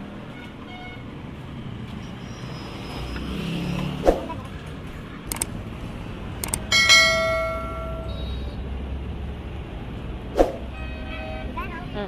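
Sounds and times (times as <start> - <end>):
street traffic: 0.0 - 12.0
sharp click: 5.3 - 5.5, 6.4 - 6.7.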